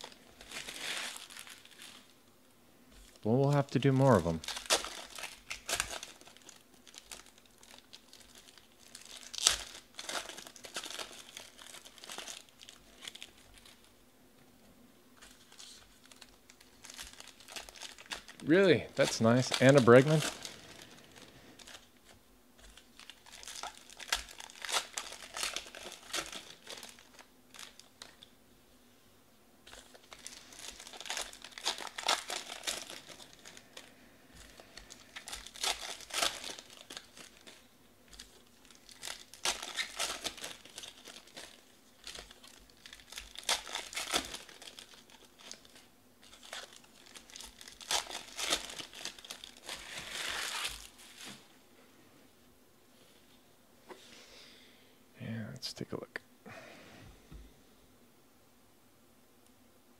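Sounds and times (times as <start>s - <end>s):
cards being flicked and shuffled: 34.4s - 45.0s.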